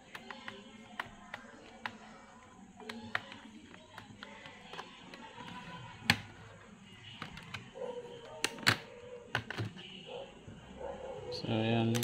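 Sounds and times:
plastic clicks and taps: 0.0 - 2.0, 2.8 - 6.4, 7.2 - 9.8
plastic clips snapping: 8.3 - 9.7.

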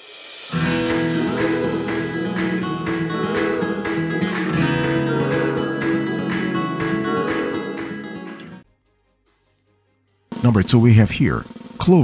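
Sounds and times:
strummed acoustic guitar: 0.5 - 8.6.

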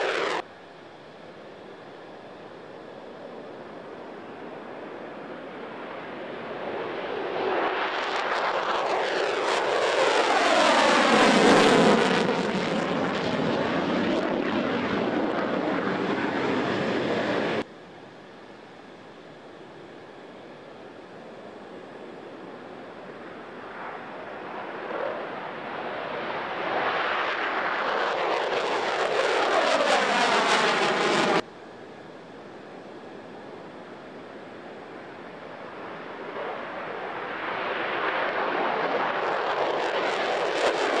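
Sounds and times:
jet engine roar: 0.0 - 41.0.

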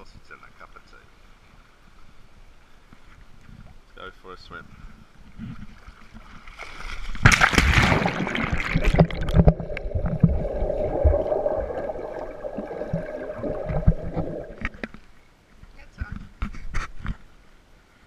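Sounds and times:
water splashing: 5.7 - 15.2
muffled underwater rushing: 7.2 - 15.0.

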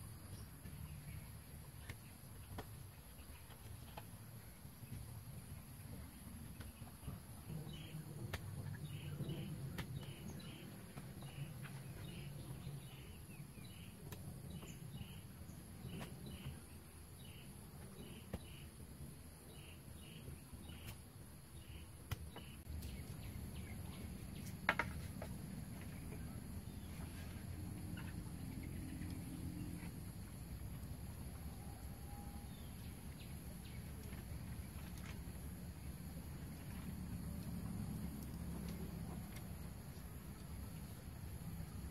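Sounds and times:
bamboo poles knocking: 24.5 - 25.4.

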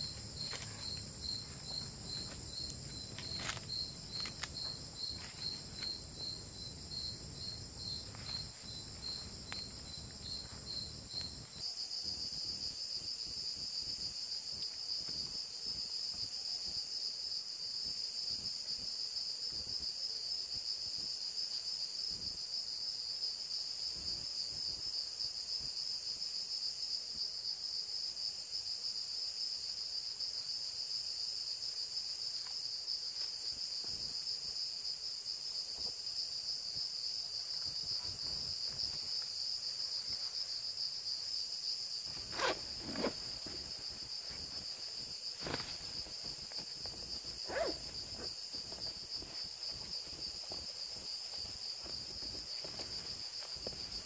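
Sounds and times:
campfire crackling: 0.0 - 11.5
insect chirping in pulses: 0.0 - 16.7, 34.8 - 54.0
high insect trill: 0.0 - 54.0.

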